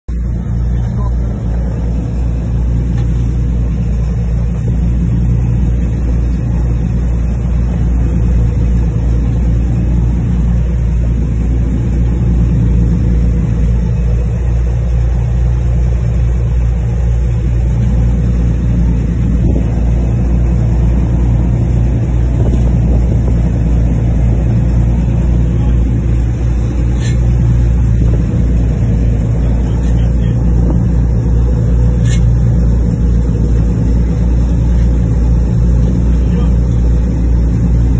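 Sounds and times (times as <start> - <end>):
boat engine running: 0.0 - 37.9.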